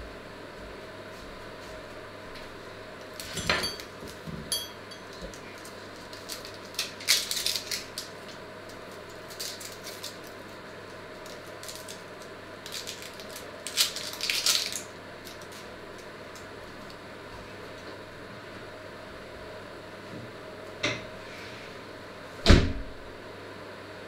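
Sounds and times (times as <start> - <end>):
knife peeling papery onion skin: 5.4 - 17.0.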